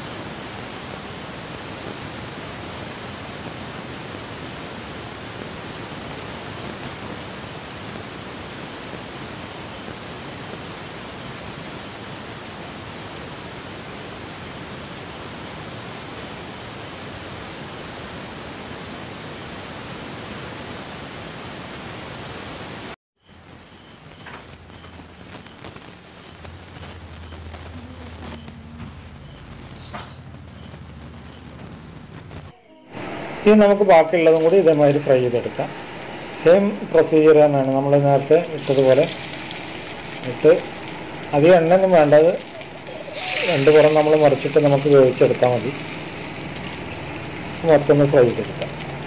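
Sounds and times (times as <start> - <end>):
hot oil sizzling: 32.9 - 49.0.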